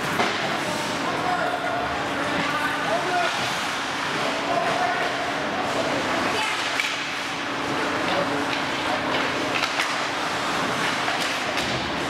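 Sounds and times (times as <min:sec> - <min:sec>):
hockey sticks and puck clacking: 0:00.0 - 0:01.0, 0:06.0 - 0:12.0.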